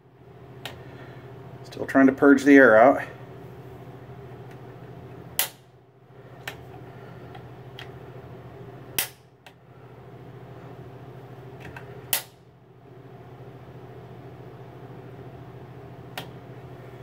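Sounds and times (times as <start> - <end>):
steady low hum: 0.0 - 17.0
piezo igniter snaps: 5.3 - 5.7, 8.9 - 9.6, 11.6 - 12.4, 16.1 - 16.4.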